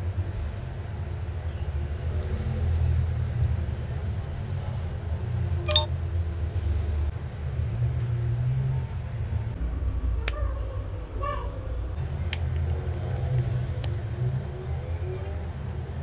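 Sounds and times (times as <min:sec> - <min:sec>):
sharp ringing click: 0:05.7 - 0:05.9.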